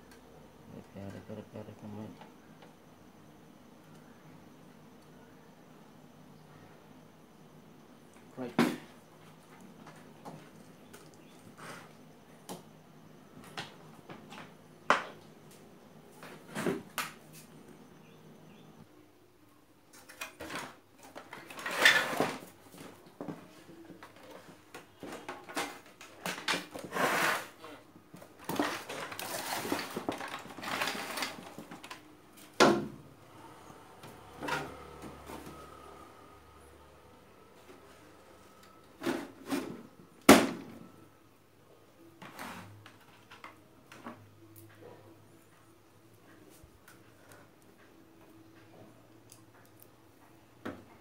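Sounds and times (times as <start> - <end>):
faint steady hum: 0.0 - 26.9
rustling and clattering of plastic parts: 19.9 - 32.9, 42.2 - 44.8.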